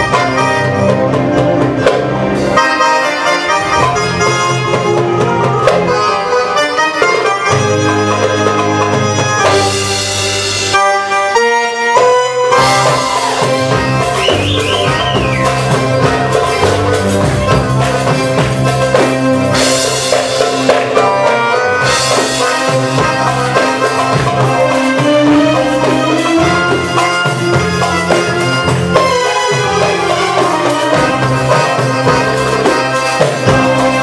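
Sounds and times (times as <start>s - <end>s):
electronic keyboard melody: 0.0s - 34.0s
steady drum rhythm: 0.0s - 34.0s
percussion beat: 11.9s - 34.0s.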